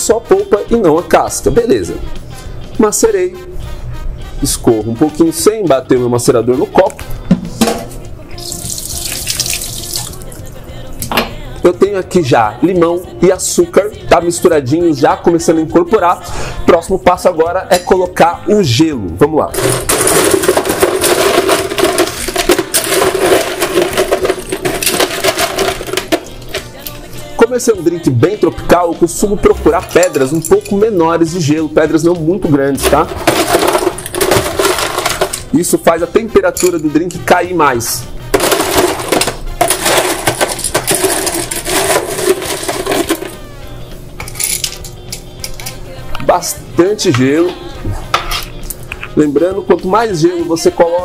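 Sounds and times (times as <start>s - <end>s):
ice cubes clattering: 8.4s - 10.3s, 19.6s - 26.8s, 32.9s - 35.5s, 38.3s - 43.4s.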